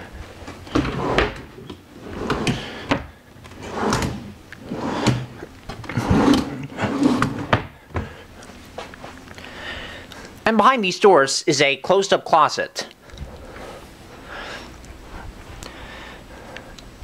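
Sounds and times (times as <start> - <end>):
drawers sliding open and shut: 0.4 - 7.8.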